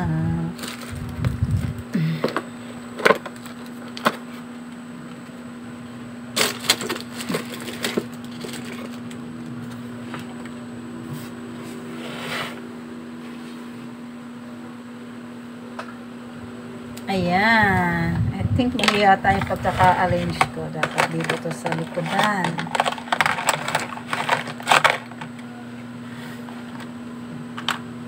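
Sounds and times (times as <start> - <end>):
steady low hum: 0.0 - 28.0
short scrape: 11.9 - 12.6
makeup items clicking and knocking: 20.3 - 25.3.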